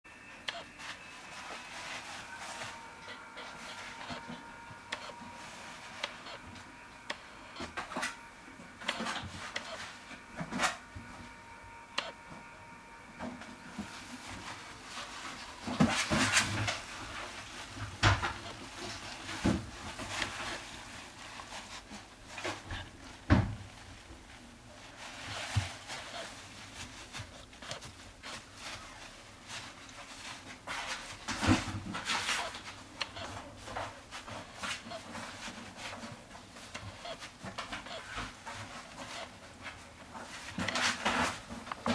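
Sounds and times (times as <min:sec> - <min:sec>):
faint steady hum: 0:00.1 - 0:41.9
paper bedding rustling: 0:00.7 - 0:04.4, 0:13.6 - 0:41.9
puppy rustling in shredded paper: 0:00.8 - 0:02.9.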